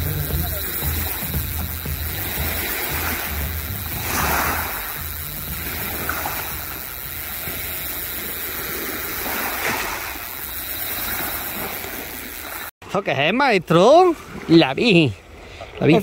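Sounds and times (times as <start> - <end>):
sea surf washing: 0.0 - 12.7.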